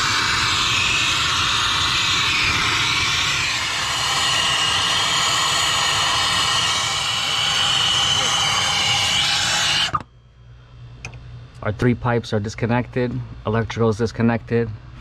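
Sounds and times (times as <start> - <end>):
torch flame hissing: 0.0 - 10.0.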